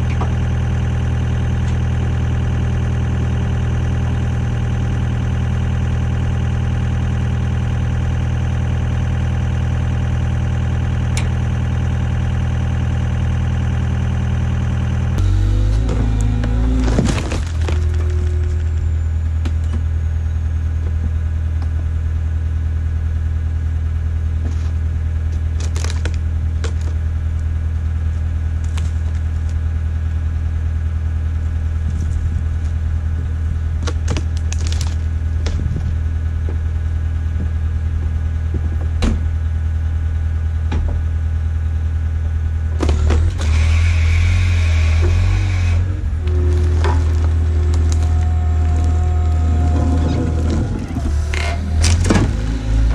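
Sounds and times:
skid steer engine idling: 0.0 - 52.9
hydraulic whine: 14.8 - 21.8, 42.7 - 52.9
knocks and cracks: 25.6 - 27.0.

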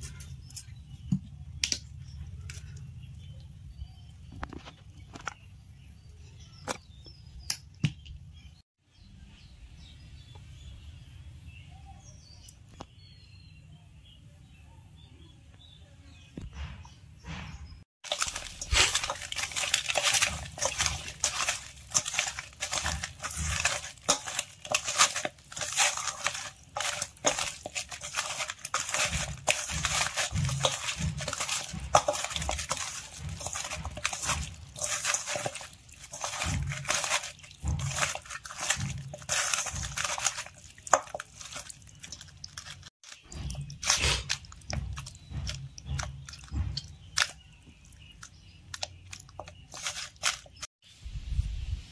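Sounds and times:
hand squishing raw chicken: 18.0 - 50.7.

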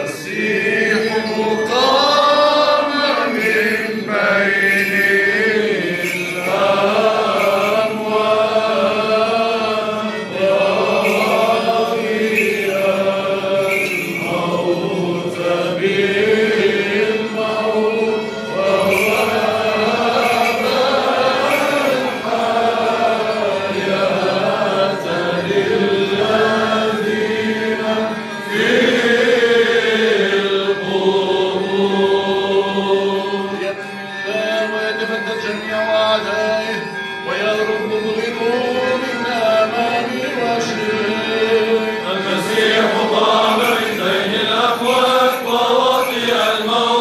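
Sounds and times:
men singing a chant: 0.0 - 47.0.

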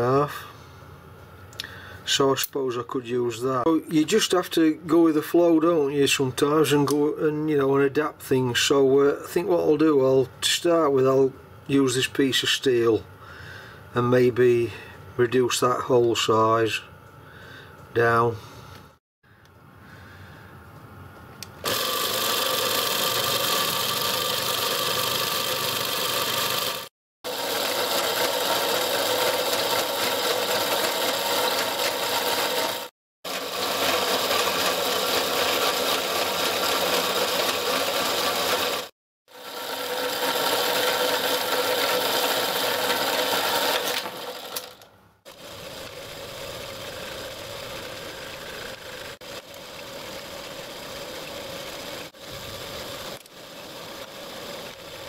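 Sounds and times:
power hacksaw cutting steel: 21.6 - 45.4.

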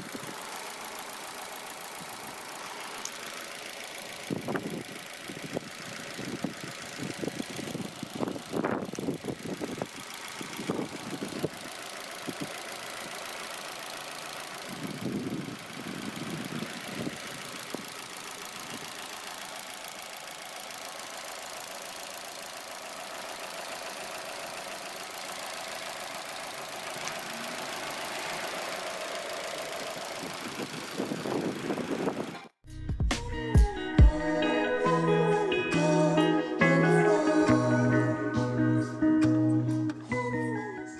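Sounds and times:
car engine idling: 0.0 - 32.6.

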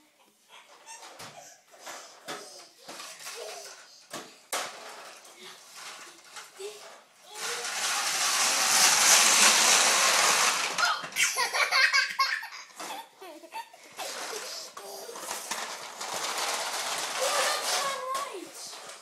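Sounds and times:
plastic toys rolling on tiles: 0.5 - 19.0
toddler giggling and laughing: 10.8 - 15.3.

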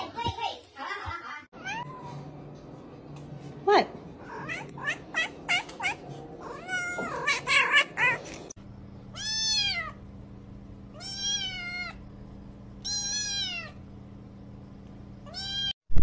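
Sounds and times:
cats meowing: 1.6 - 2.3, 4.2 - 8.5, 9.2 - 10.0, 11.0 - 12.0, 12.8 - 13.8
steady low hum: 1.6 - 15.7
kitten mewing: 4.2 - 8.5.

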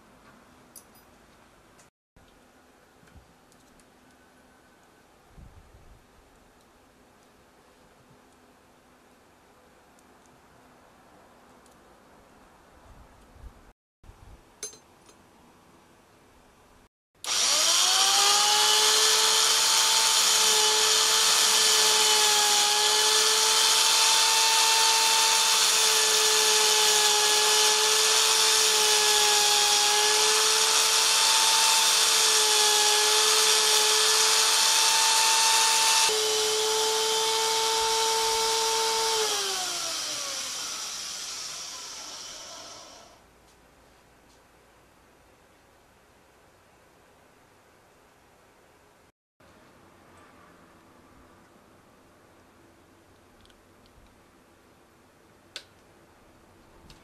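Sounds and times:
belt sander whining: 17.2 - 43.2.

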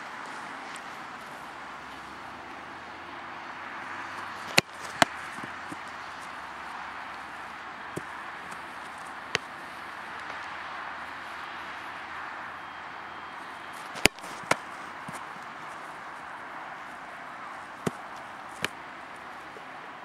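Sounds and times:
ball slapping goalkeeper gloves: 4.2 - 6.4, 7.0 - 10.8, 13.5 - 16.0, 17.6 - 19.7
football struck hard: 14.0 - 14.6.

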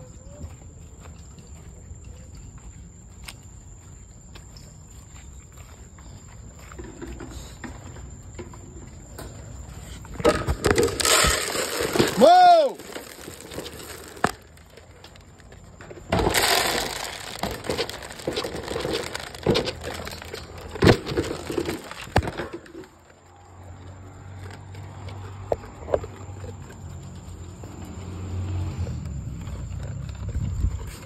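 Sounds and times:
dry kibble pouring and rattling: 10.6 - 15.5, 16.1 - 22.8
metal crate and bowl clanks: 16.0 - 22.8.

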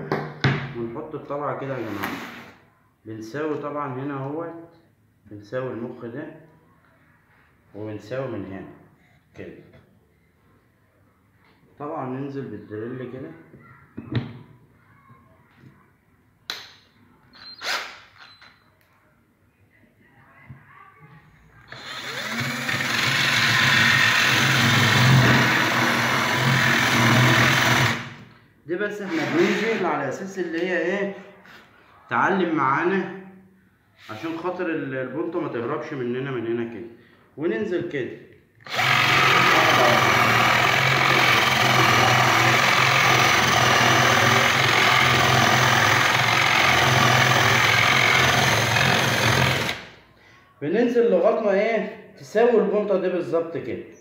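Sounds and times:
cordless drill whirring: 21.7 - 28.1, 38.6 - 49.9
drill bit grinding through wood: 21.7 - 28.1, 38.6 - 49.9.

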